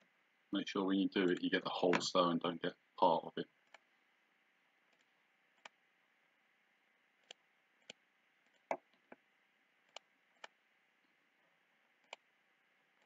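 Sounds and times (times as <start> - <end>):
computer mouse clicking: 3.6 - 3.9, 4.9 - 5.8, 7.2 - 9.2, 9.9 - 10.6, 12.0 - 12.3.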